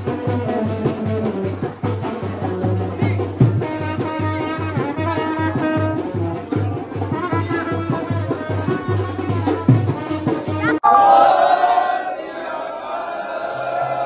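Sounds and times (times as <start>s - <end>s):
brass band horns melody: 0.0s - 10.8s
steady drum beat: 0.0s - 10.8s.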